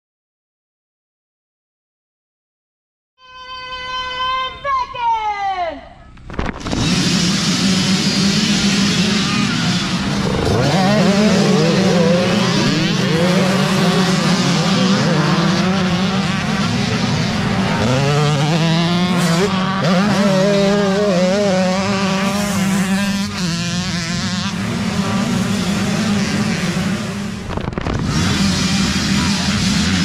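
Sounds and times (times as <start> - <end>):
dirt bike engines revving: 6.2 - 30.0
nearby dirt bike accelerating: 6.5 - 30.0.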